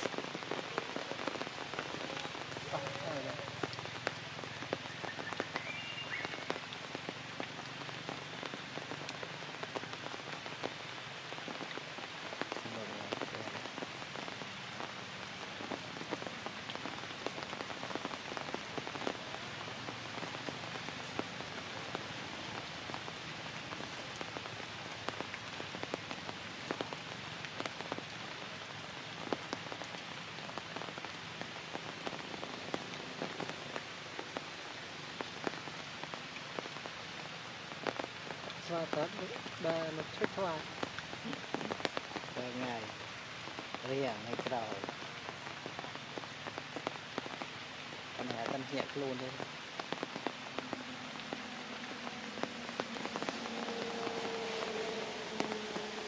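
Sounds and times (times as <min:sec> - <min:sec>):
rain falling on leaves: 0:00.0 - 0:56.0
water drips ticking: 0:00.0 - 0:56.0.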